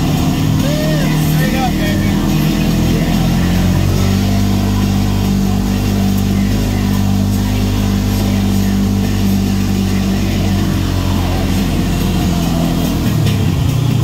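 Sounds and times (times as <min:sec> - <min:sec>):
utility vehicle engine running: 0:00.0 - 0:14.0.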